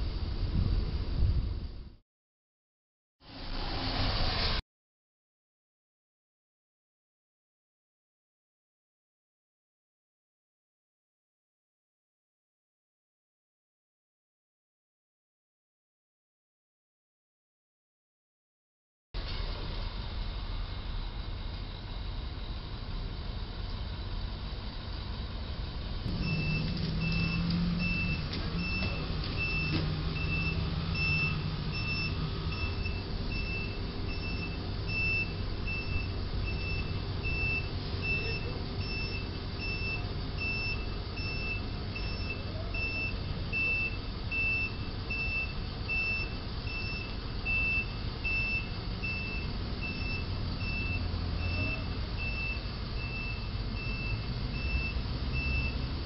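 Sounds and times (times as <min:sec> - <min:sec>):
truck engine running: 0:19.2 - 0:56.0
truck reversing alarm beeping: 0:26.1 - 0:56.0.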